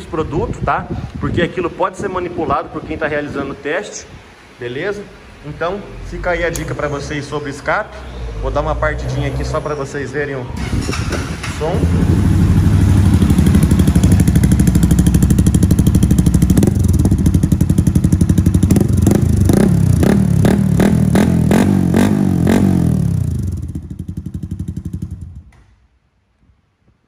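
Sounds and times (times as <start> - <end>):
motorcycle engine revving: 6.2 - 25.5.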